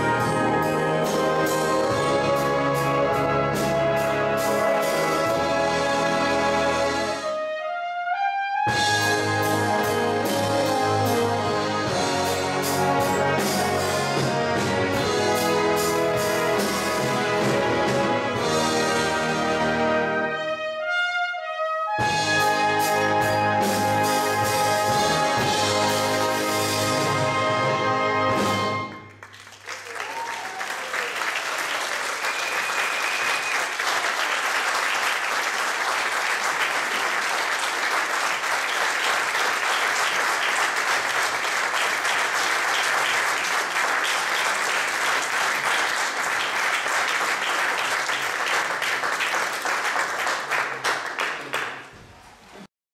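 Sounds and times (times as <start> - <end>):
brass band chord: 0.0 - 29.1
flugelhorn solo: 0.0 - 29.1
audience applauding: 29.0 - 52.0.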